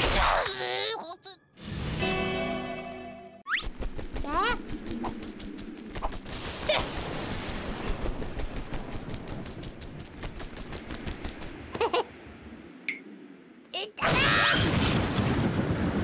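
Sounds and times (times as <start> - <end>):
cartoon wing flapping rattle: 3.5 - 11.8.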